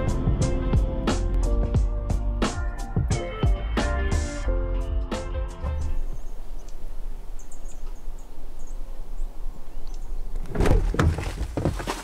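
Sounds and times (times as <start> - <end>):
faint high bird chirps: 6.0 - 10.4.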